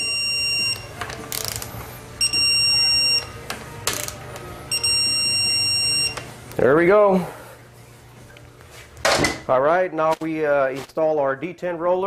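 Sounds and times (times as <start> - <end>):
torque wrench beeping: 0.0 - 1.6, 2.2 - 3.4, 4.7 - 6.3.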